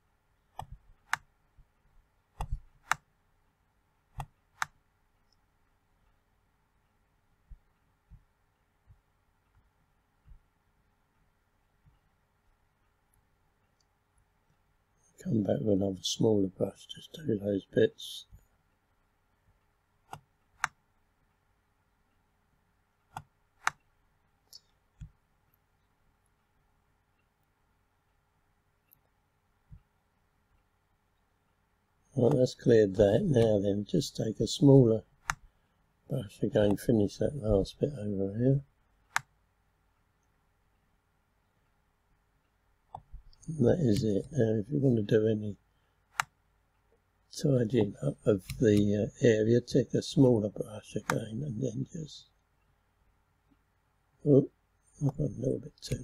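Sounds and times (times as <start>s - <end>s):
computer mouse clicking: 0.5s - 1.3s, 2.4s - 3.1s, 4.1s - 5.4s, 20.1s - 20.8s, 23.0s - 23.9s, 35.2s - 35.5s, 39.0s - 39.4s, 46.1s - 46.9s.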